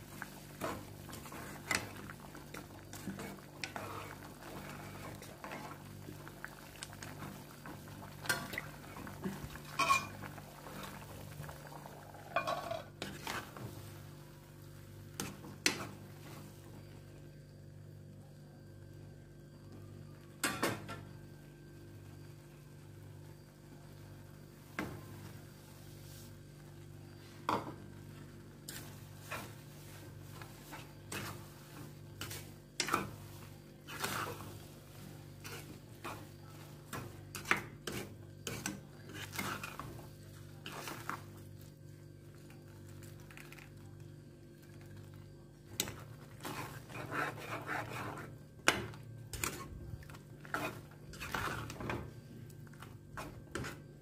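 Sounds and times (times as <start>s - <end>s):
spatula scraping a pan: 9.2s - 10.2s, 12.3s - 13.8s, 28.7s - 40.0s, 45.8s - 54.0s.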